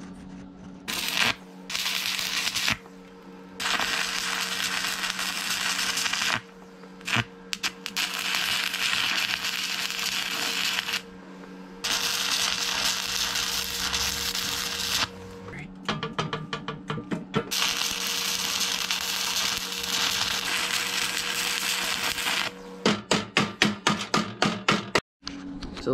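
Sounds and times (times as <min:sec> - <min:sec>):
arc welding crackling hiss: 0:00.9 - 0:02.8, 0:03.6 - 0:11.1, 0:11.8 - 0:15.2, 0:17.5 - 0:22.6.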